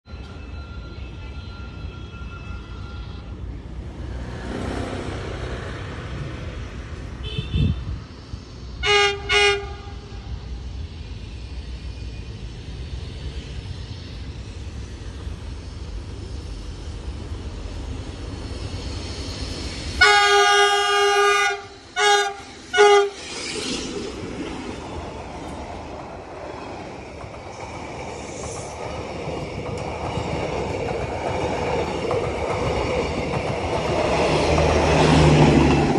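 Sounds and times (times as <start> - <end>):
train rumbling past: 0.1 - 35.9
diesel locomotive horn blasts: 0.6 - 3.5, 7.2 - 8.0, 8.8 - 10.3, 20.0 - 23.2.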